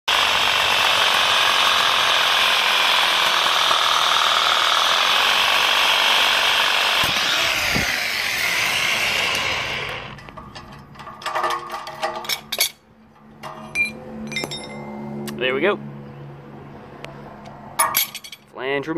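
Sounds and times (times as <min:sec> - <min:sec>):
power saw cutting metal: 0:00.1 - 0:15.4
metal clinks and knocks: 0:10.1 - 0:15.2, 0:17.8 - 0:18.5.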